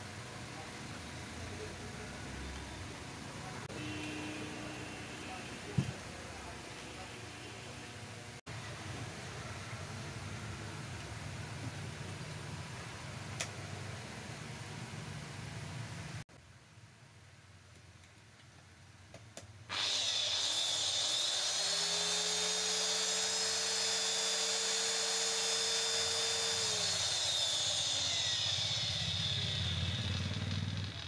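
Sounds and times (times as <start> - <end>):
electric cutter motor whining: 19.7 - 31.0.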